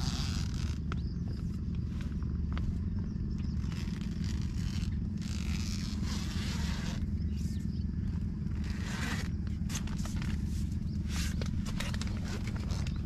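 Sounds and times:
tent fabric rustling: 0:00.0 - 0:00.8, 0:03.6 - 0:07.7, 0:08.5 - 0:13.0
wind buffeting tent: 0:00.0 - 0:13.0.

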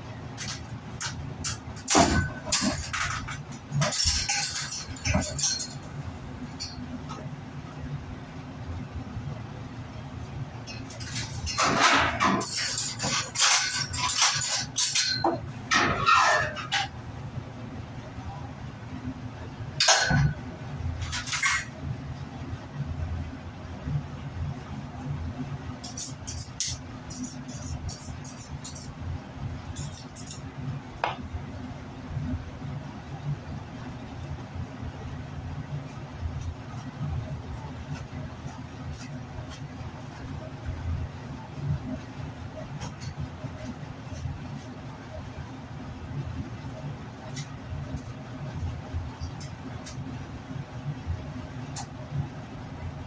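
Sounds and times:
steady low hum: 0:00.0 - 0:53.0
metal hooks clinking on rail: 0:00.4 - 0:05.9.

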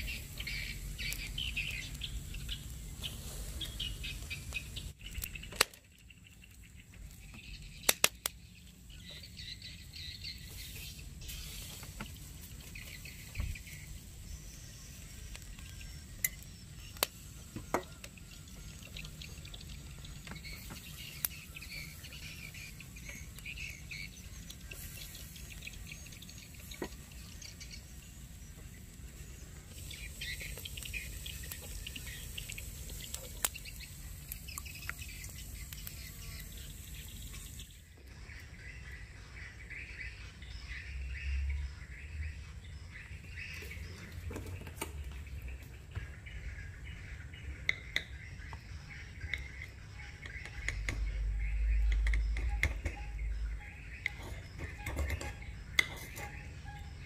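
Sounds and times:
skewers clicking on a grill: 0:00.0 - 0:06.2, 0:07.7 - 0:08.4, 0:15.2 - 0:27.7, 0:29.7 - 0:37.6, 0:49.2 - 0:53.2, 0:53.9 - 0:57.0
low steady hiss: 0:00.0 - 0:47.5
birds chirping: 0:00.0 - 0:57.0.

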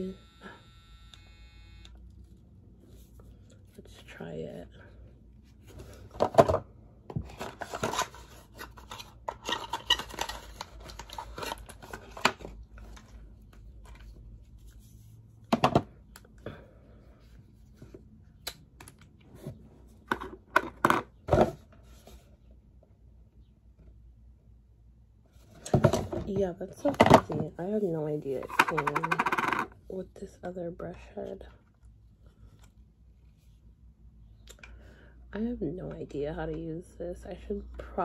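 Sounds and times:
plastic rustling and scraping: 0:05.5 - 0:15.7.

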